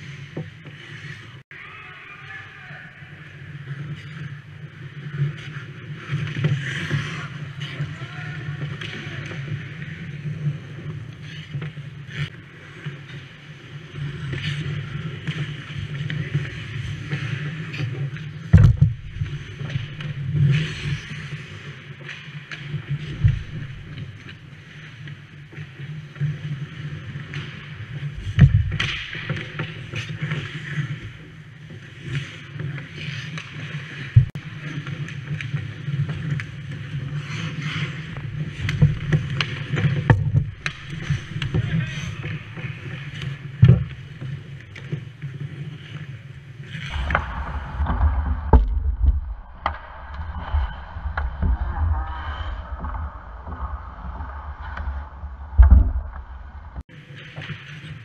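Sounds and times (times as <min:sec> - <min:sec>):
skates scraping ice: 0:00.0 - 0:01.4, 0:02.6 - 0:58.0
puck and sticks knocking: 0:18.5 - 0:20.6, 0:28.2 - 0:29.6, 0:38.2 - 0:44.0, 0:46.9 - 0:52.0
steady low hum: 0:46.9 - 0:56.8.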